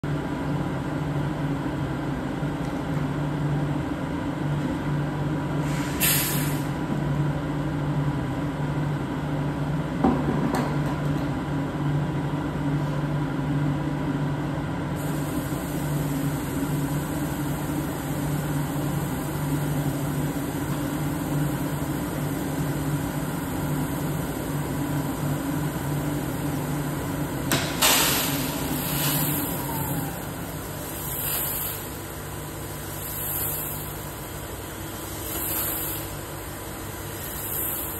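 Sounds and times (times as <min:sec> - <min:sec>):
coffee roaster mechanical hum: 0:00.0 - 0:37.9
short hissing bursts: 0:05.6 - 0:06.7, 0:15.0 - 0:20.4, 0:27.8 - 0:36.3, 0:37.0 - 0:37.9.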